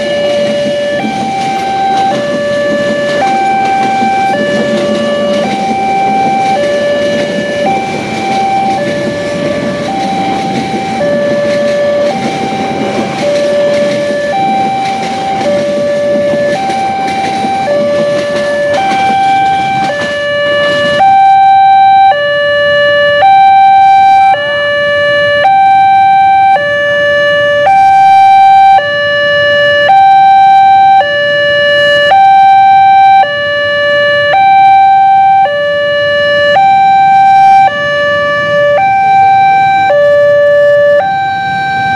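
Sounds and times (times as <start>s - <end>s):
train rumbling past: 0.0s - 21.5s
level crossing two-tone alarm: 0.0s - 41.9s.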